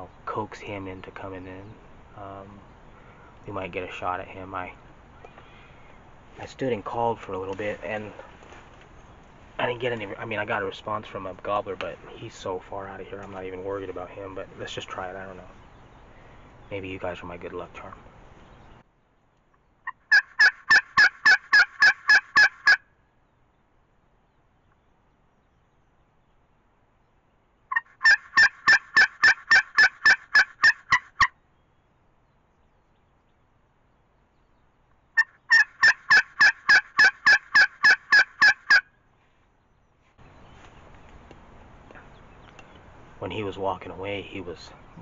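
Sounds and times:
turkey call yelps: 0:19.8 - 0:22.9, 0:27.7 - 0:31.4, 0:35.2 - 0:39.0.

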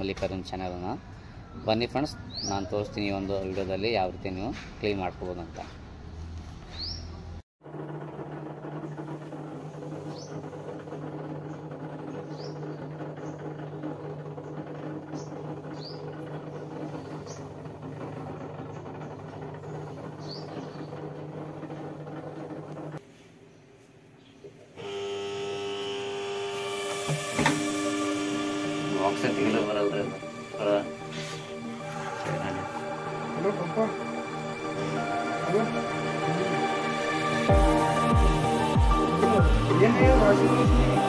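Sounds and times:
washing machine humming: 0:07.6 - 0:23.0, 0:24.8 - 0:41.0
background music: 0:27.7 - 0:41.0.

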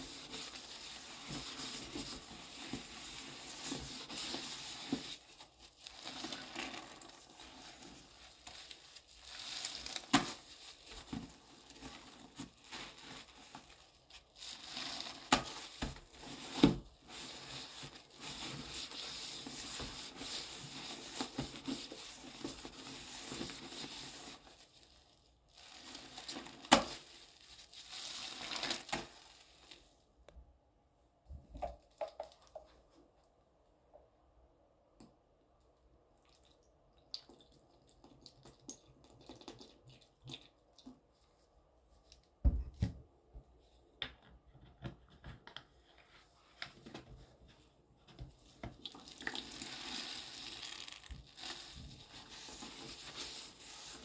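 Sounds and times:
sponge squelching in foamy paste: 0:00.0 - 0:29.9, 0:48.5 - 0:54.0.

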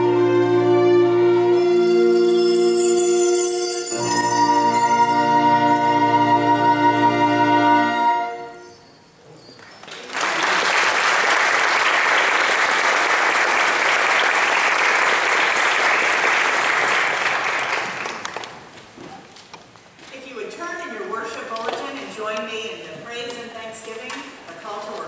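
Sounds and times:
audience applause: 0:09.8 - 0:18.7.

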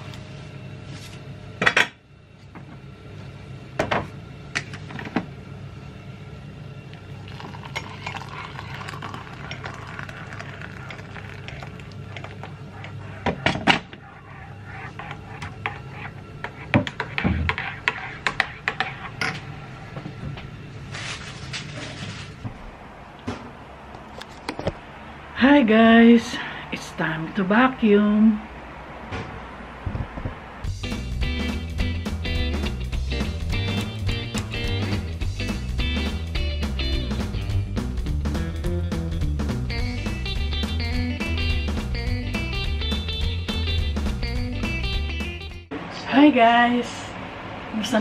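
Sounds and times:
water pouring into mug: 0:07.0 - 0:12.6.

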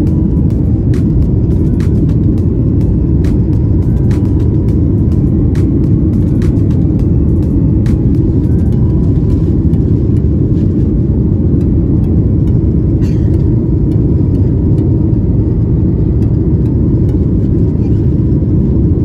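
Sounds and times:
jet engines rumbling: 0:00.0 - 0:19.0.

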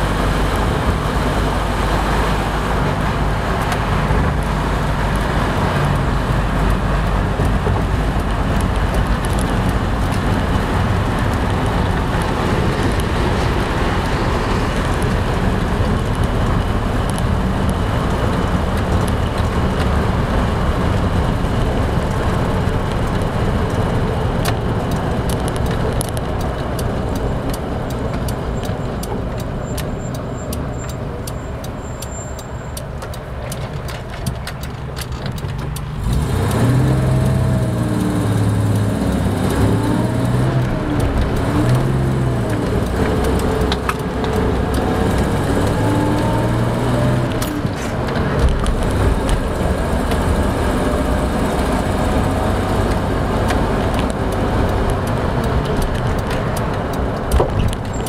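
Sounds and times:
road noise: 0:00.0 - 0:58.0
truck engine running: 0:00.0 - 0:58.0
light evenly spaced ticks: 0:23.1 - 0:47.6.

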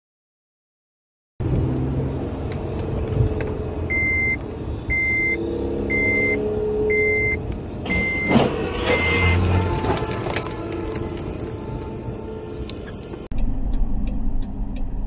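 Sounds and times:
car engine and road noise: 0:01.4 - 0:15.0
high-pitched electronic beep: 0:03.9 - 0:08.3.

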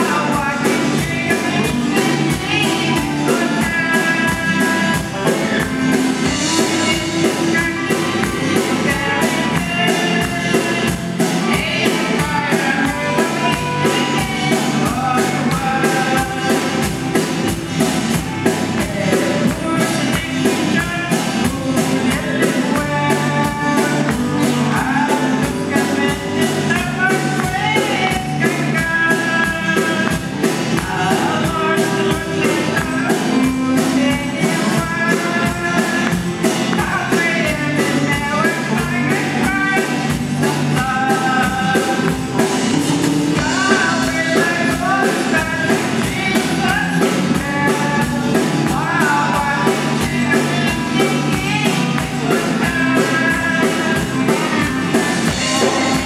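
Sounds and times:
women singing: 0:00.0 - 0:16.9, 0:30.8 - 0:56.0
drum kit beat: 0:00.0 - 0:56.0
electric guitar: 0:00.0 - 0:56.0
strummed acoustic guitar: 0:00.0 - 0:56.0.

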